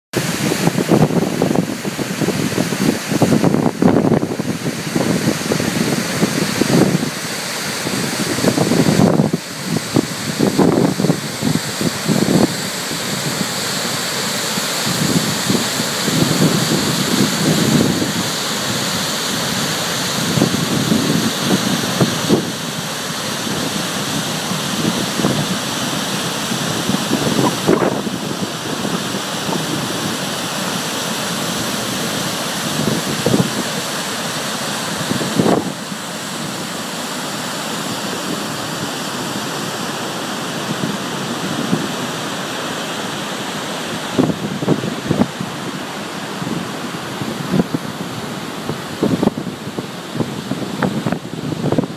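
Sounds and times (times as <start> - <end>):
wind buffeting microphone: 0.2 - 33.9, 34.9 - 36.6, 46.4 - 51.9
waterfall roaring: 0.2 - 51.9.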